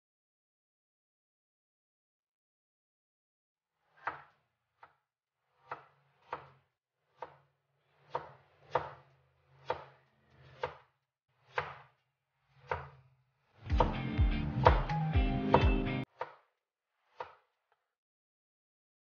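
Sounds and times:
cleaver chopping on cutting board: 0:05.6 - 0:06.6, 0:07.2 - 0:07.4, 0:08.1 - 0:09.0, 0:09.6 - 0:10.9, 0:11.5 - 0:11.9, 0:12.6 - 0:13.0, 0:13.6 - 0:16.5, 0:17.1 - 0:17.4.

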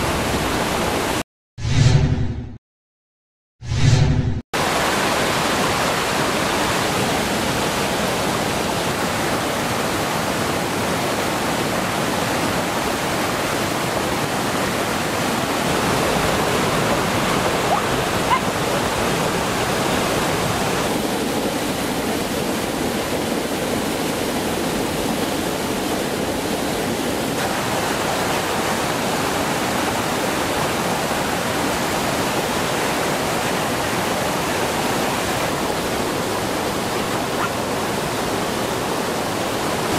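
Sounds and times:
stream rushing over rocks: 0:00.0 - 0:01.2, 0:04.6 - 0:39.9.

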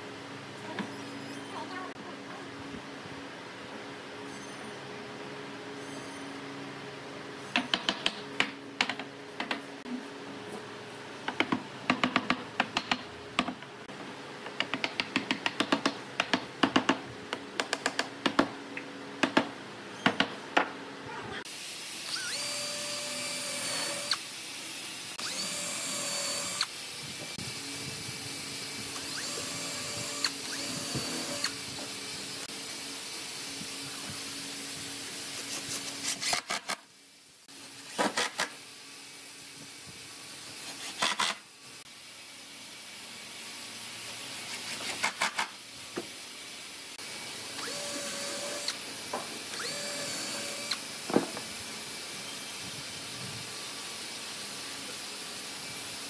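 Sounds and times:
cordless drill driving into wood: 0:29.0 - 0:31.6.

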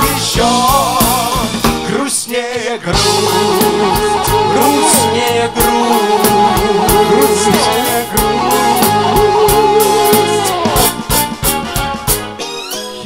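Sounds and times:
drum kit and bass beat: 0:00.0 - 0:12.6
wavering lead melody: 0:03.0 - 0:11.4.

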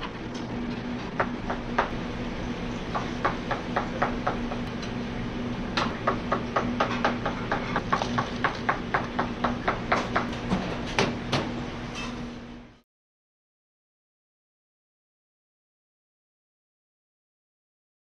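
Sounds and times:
steady hum: 0:00.0 - 0:12.8.

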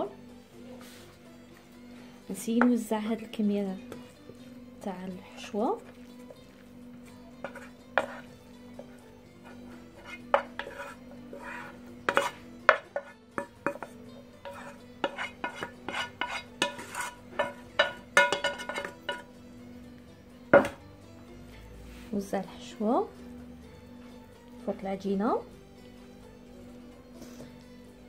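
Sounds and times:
utensil scraping metal pan: 0:07.4 - 0:19.3.

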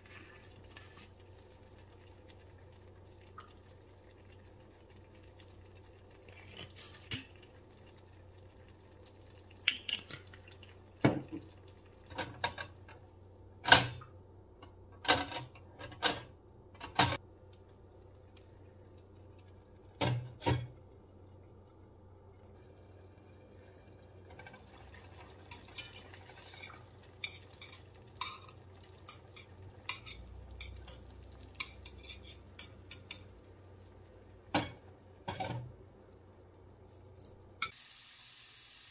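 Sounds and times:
cookware clinking: 0:25.5 - 0:33.3, 0:34.6 - 0:35.6.

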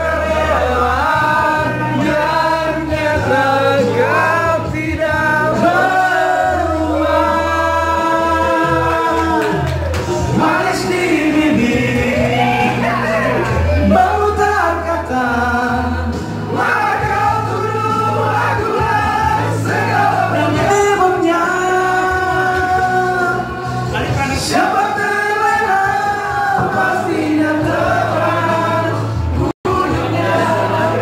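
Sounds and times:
amplified backing music: 0:00.0 - 0:31.0
man singing into a microphone: 0:00.0 - 0:31.0
other voices singing along: 0:00.0 - 0:31.0.

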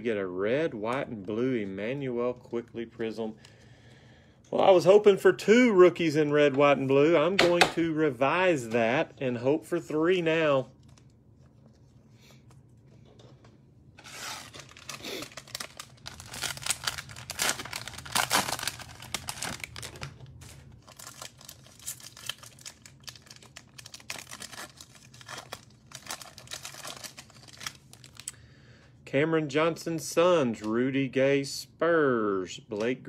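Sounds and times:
foil wrapper crinkling and tearing: 0:14.0 - 0:28.4.

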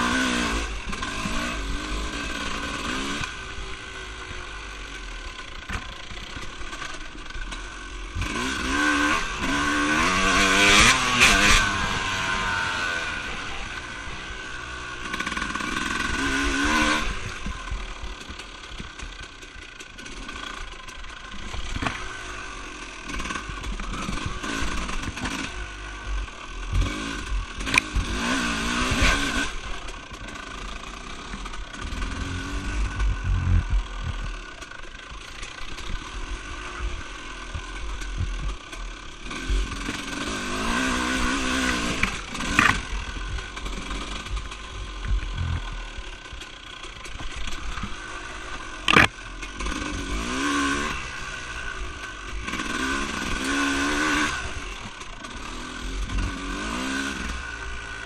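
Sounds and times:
off-road engine revving: 0:00.0 - 0:58.0.

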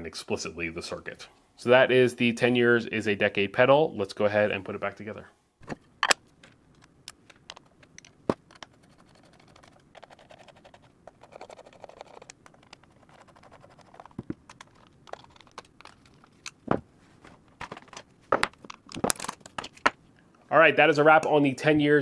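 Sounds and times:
screw ticking and scraping: 0:06.0 - 0:16.7, 0:17.4 - 0:19.9.

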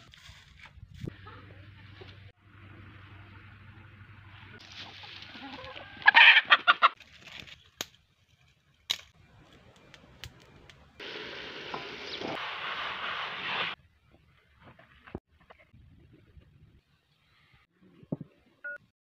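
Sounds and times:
chicken clucking: 0:05.0 - 0:07.0
steaming pot hissing: 0:11.0 - 0:13.8.

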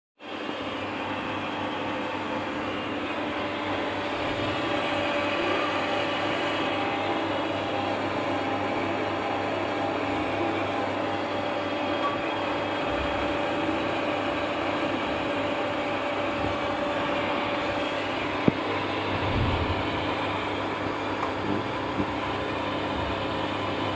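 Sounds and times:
electric water pump humming: 0:00.2 - 0:23.9.

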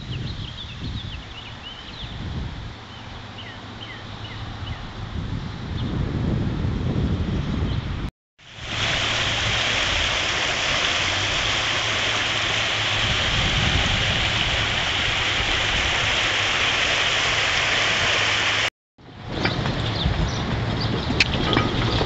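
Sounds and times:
river rushing: 0:08.4 - 0:18.7.

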